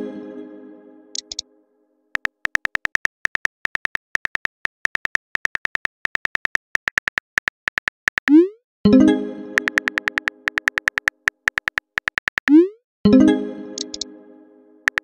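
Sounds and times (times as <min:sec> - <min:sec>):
phone keyboard typing clicks: 0:01.2 - 0:01.4, 0:02.2 - 0:08.4, 0:09.6 - 0:12.6, 0:13.8 - 0:14.0.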